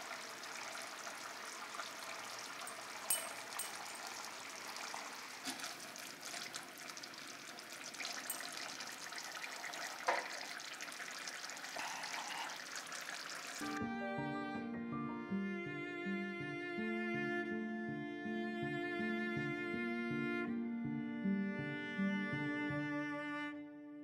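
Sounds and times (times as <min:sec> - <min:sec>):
curry bubbling and popping: 0:00.4 - 0:13.6
violin music: 0:13.6 - 0:24.0.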